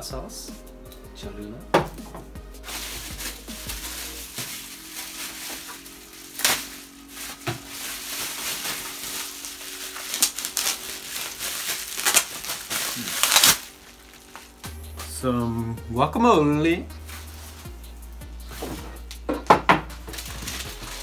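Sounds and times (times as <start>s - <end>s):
plastic bag crinkling: 2.6s - 14.6s, 20.1s - 21.0s.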